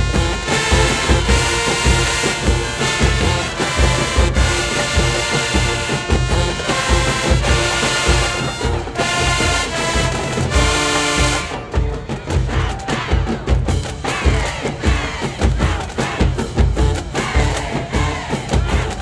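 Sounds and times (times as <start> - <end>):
marching band brass playing: 0.0 - 19.0.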